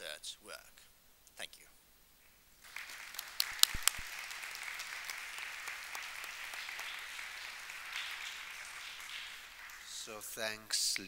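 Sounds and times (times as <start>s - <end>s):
audience applauding: 2.6s - 10.6s.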